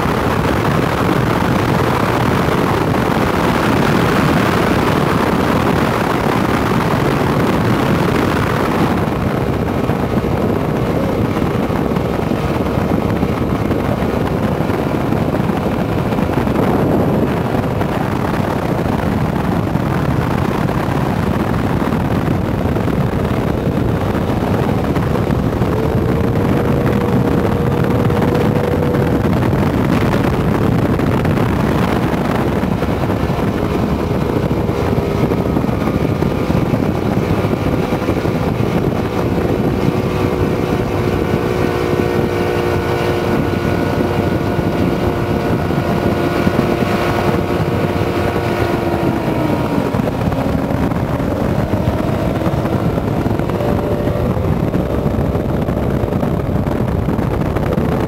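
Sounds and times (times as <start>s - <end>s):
heavy wind: 0.0s - 58.0s
boat engines droning: 22.9s - 52.1s.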